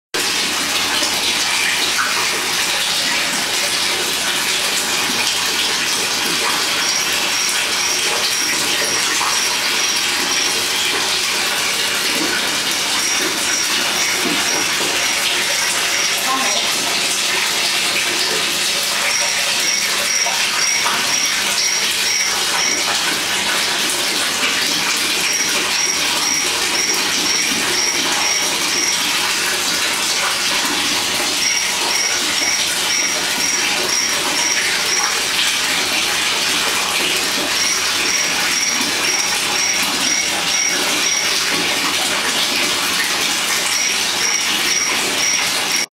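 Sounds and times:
aquarium air bubbling: 4.4 - 41.8
high pulsing: 19.1 - 23.0.

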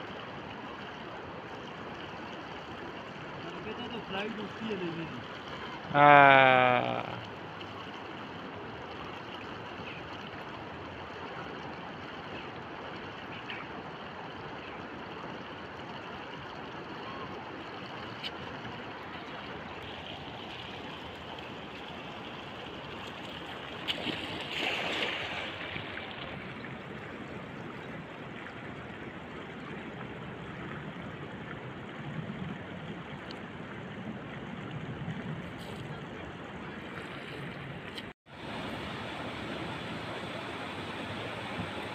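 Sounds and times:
river flowing over stones: 0.0 - 34.6, 37.8 - 41.9
net splashing into water: 23.8 - 26.3.

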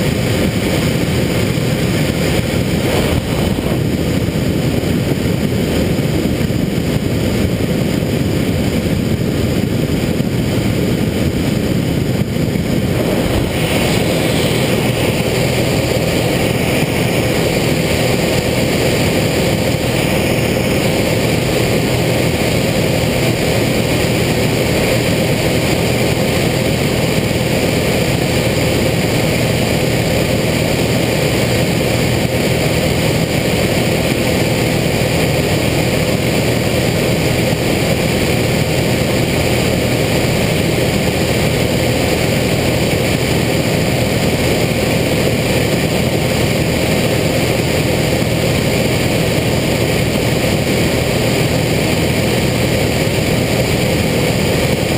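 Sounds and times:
light aircraft engine and propeller: 0.0 - 54.9.

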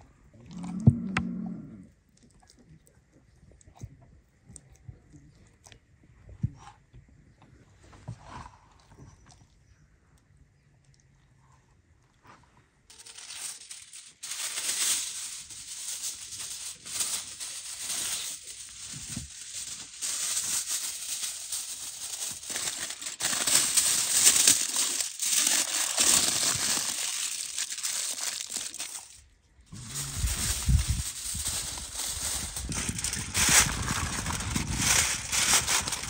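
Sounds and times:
aluminium foil crinkling: 12.9 - 36.0.

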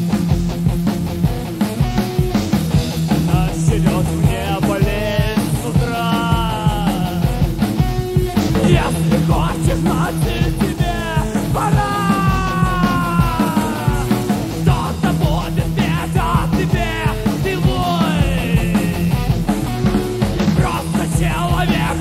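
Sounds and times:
bass and guitars: 0.0 - 22.0
drums beat: 0.0 - 22.0
lead guitar long notes: 0.0 - 22.0.

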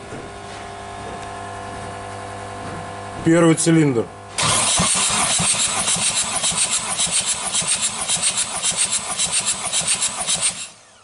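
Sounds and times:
diesel engine cranking: 4.4 - 11.0.

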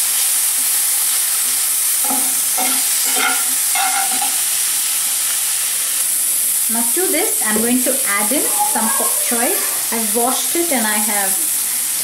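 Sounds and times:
vegetables sizzling in oil: 0.0 - 12.0
spatula stirring in skillet: 1.4 - 4.6.

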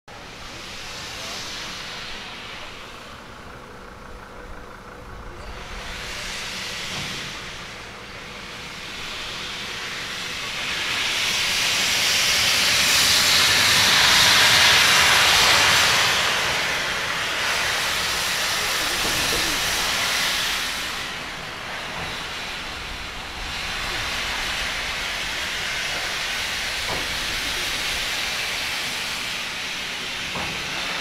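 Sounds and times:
steam locomotive hissing: 0.1 - 31.0.

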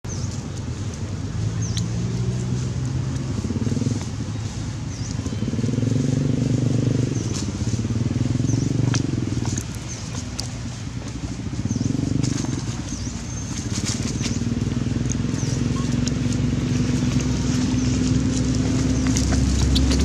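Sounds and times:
engine droning: 0.1 - 20.0.

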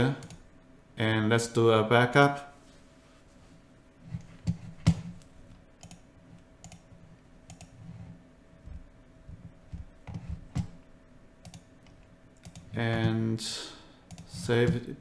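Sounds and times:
computer mouse clicks: 0.2 - 0.4, 4.5 - 6.0, 6.6 - 7.8, 11.4 - 12.7, 14.1 - 14.8.

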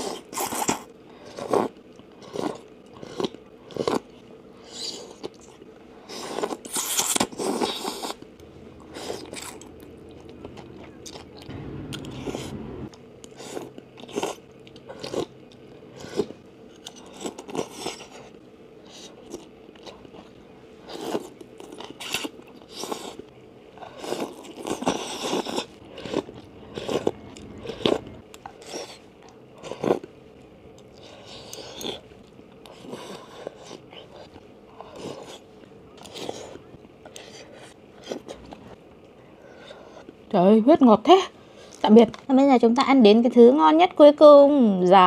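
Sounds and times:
chewing with crunchy bites: 0.0 - 40.3
slurping noodles: 6.0 - 8.2, 23.8 - 30.0.

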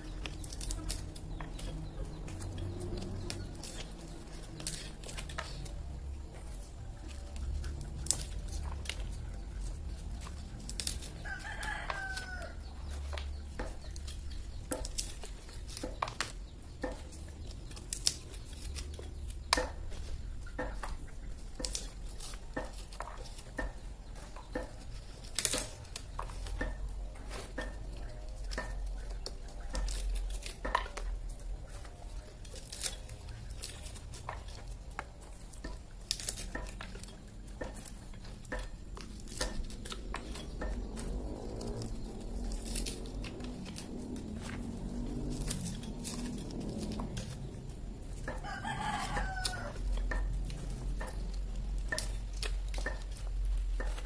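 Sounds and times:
nut peeler clicking and cracking: 9.8 - 26.8, 32.4 - 54.0
rooster crowing: 11.1 - 12.8, 48.2 - 50.3.

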